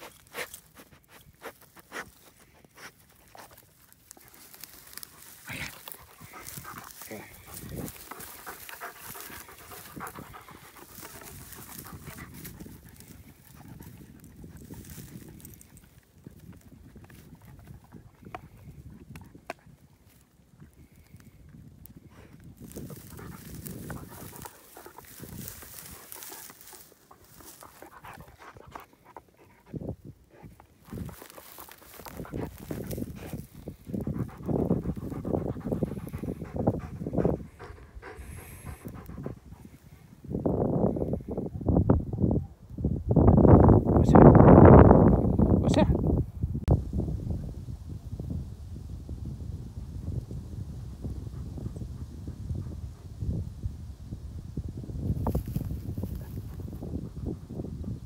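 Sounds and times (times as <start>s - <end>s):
dry grass crunching and rustling: 0.0s - 41.9s, 54.8s - 58.0s
dog breathing: 5.3s - 14.0s, 22.8s - 40.1s.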